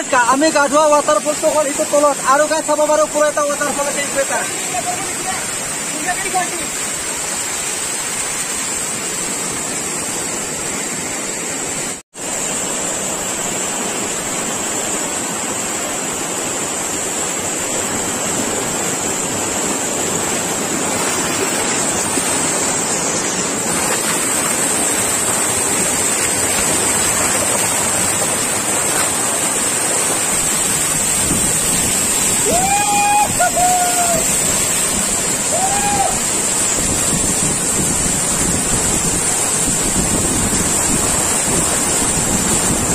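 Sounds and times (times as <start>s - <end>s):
waterfall crashing onto rocks: 0.0s - 42.9s.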